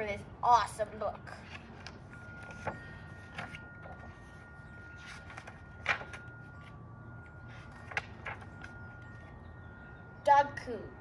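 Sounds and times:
paper rustles: 1.4s - 9.4s.

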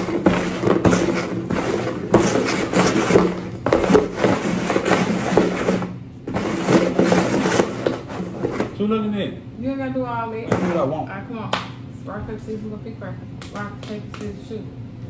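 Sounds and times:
plastic bowls scraping on wood: 0.0s - 8.9s, 10.5s - 11.0s.

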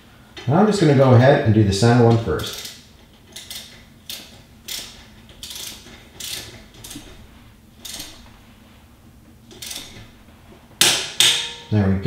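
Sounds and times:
torque wrench ratchet clicks: 2.4s - 7.0s, 9.6s - 10.0s.

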